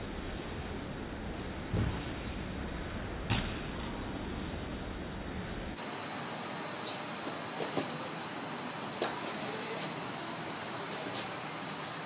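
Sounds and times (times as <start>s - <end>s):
steady background hiss: 5.7s - 12.0s.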